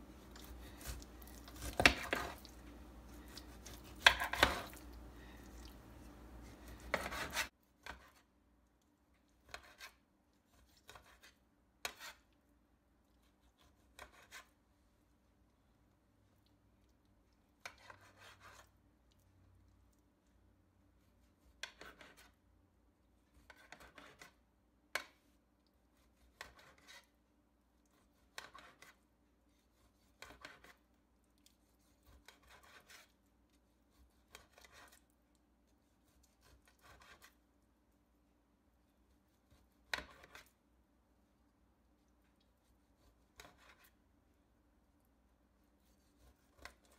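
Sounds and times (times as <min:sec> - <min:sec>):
knife scraping on glass dish: 0:06.8 - 0:08.2.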